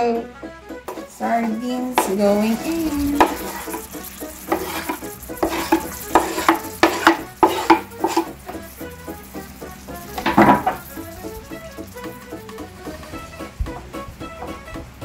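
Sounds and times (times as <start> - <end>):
utensil scraping cutting board: 0.9 - 12.2
sauce sizzling: 0.9 - 13.3.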